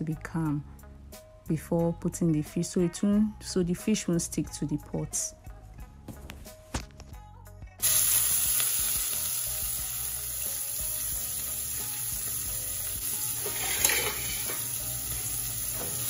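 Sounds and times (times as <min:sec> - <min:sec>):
onions sizzling in oil: 0:07.8 - 0:16.0.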